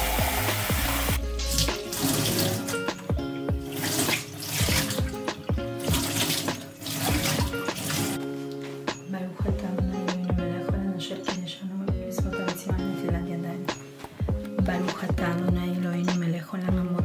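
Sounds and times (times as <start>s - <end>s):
tap water running: 0.0s - 8.7s
background music with a beat: 0.0s - 17.0s.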